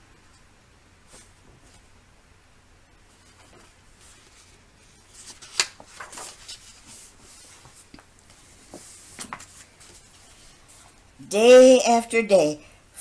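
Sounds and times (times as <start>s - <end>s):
paper page rustling: 3.1s - 11.0s
page snapping: 5.2s - 6.6s.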